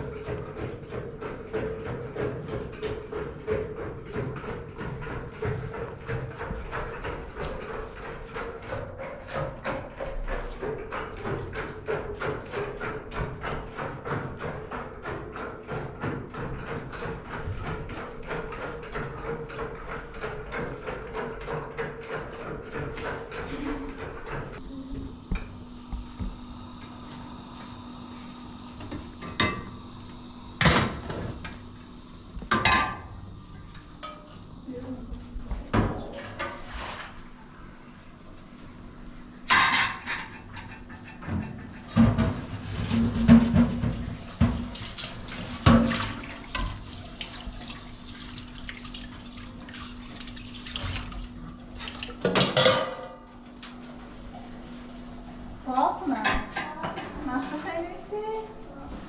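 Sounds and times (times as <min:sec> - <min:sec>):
tap running into sink: 0:41.3 - 0:52.8
metal pots clanking: 0:52.2 - 0:53.2.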